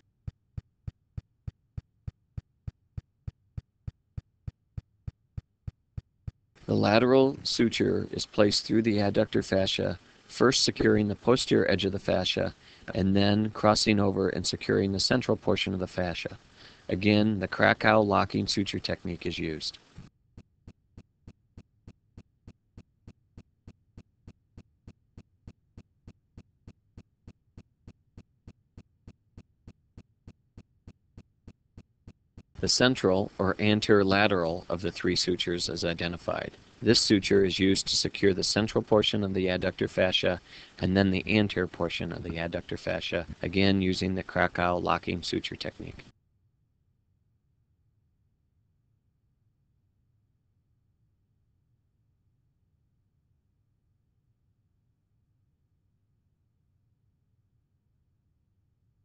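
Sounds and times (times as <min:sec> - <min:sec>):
low steady hum: 0:06.6 - 0:20.1, 0:32.6 - 0:46.1.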